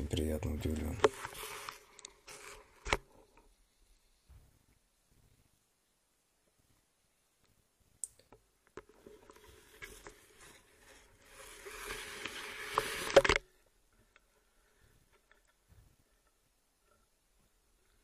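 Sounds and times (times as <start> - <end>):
knocks and scrapes: 8.8 - 13.5.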